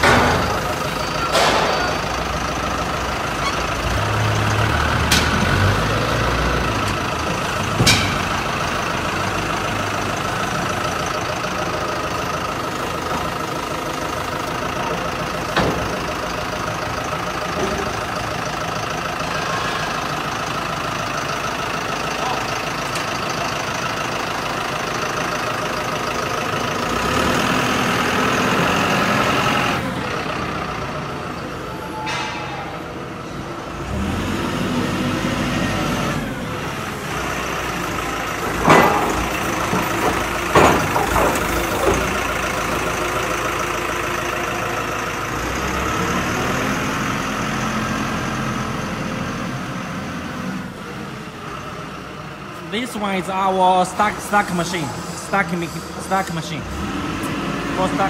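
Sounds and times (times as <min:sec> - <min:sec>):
sharp metal knocks: 0:00.0 - 0:00.6, 0:07.7 - 0:08.6, 0:38.5 - 0:42.2
forklift engine running: 0:00.0 - 0:58.0.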